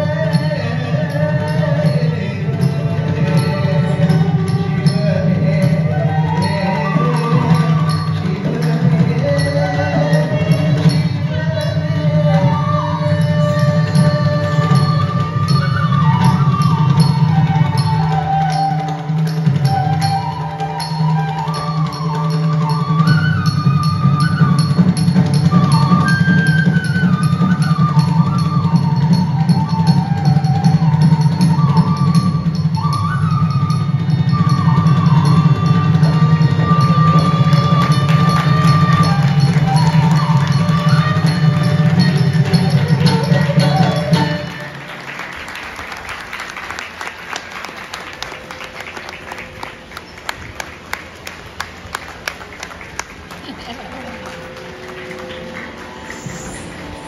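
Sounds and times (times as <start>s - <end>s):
percussion: 0.0s - 57.0s
audience applauding: 44.5s - 57.0s
melody over drone: 53.6s - 57.0s.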